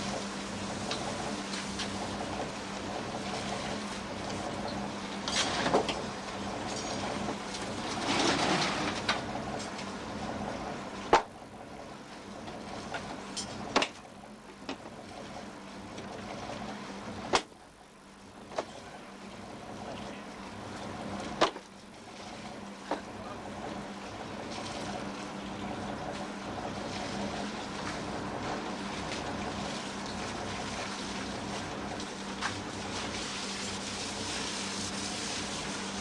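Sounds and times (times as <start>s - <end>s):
steady low hum: 8.8s - 36.0s.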